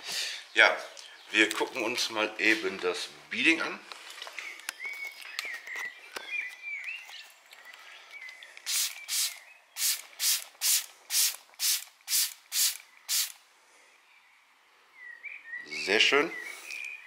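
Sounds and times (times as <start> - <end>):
spray bottle spraying: 8.7 - 13.4.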